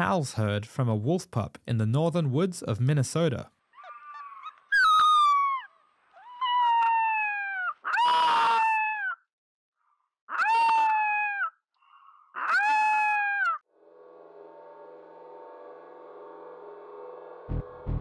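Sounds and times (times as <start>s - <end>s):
wolf pup howling: 3.8s - 9.2s, 10.3s - 11.6s, 12.4s - 13.6s.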